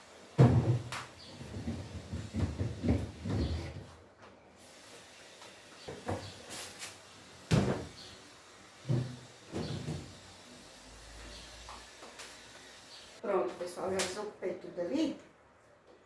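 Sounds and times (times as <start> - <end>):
refrigerator shelves knocking: 0.4 - 3.9.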